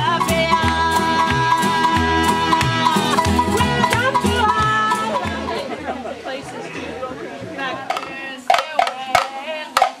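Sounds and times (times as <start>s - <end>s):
music with sliding melody: 0.0s - 5.8s.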